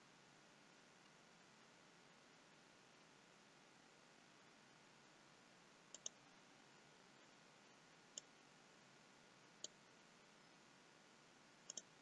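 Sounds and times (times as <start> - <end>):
low steady hiss: 0.0 - 12.0
computer mouse clicks: 5.9 - 6.2, 8.1 - 8.3, 9.6 - 9.8, 11.6 - 12.0.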